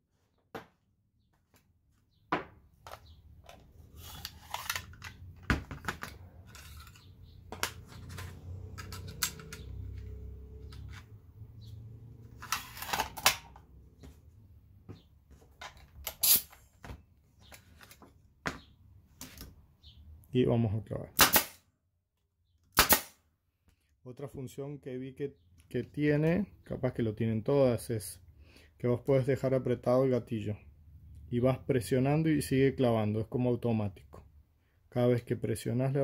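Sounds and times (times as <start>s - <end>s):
nailer clicks and metallic clatter: 5.8s - 10.0s
air hose coupling: 16.0s - 16.6s.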